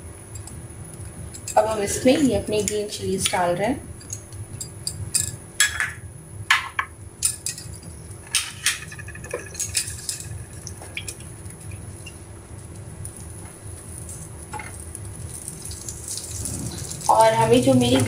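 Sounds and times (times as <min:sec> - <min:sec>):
light stirring: 0:00.3 - 0:05.5.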